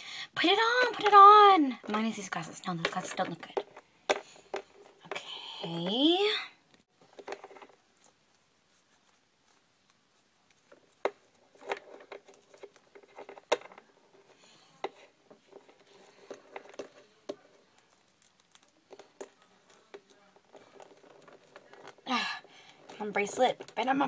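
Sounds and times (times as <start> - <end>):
plastic toys clicking and tapping: 0.6 - 6.1.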